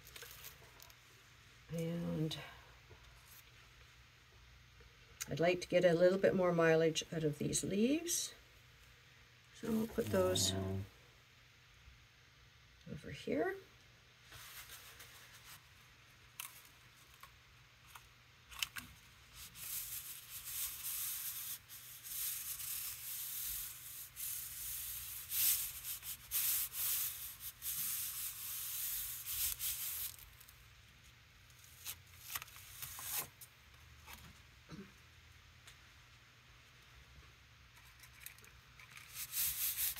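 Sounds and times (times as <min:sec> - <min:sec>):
hands rubbing on cardboard: 0:19.5 - 0:30.2, 0:39.1 - 0:39.9.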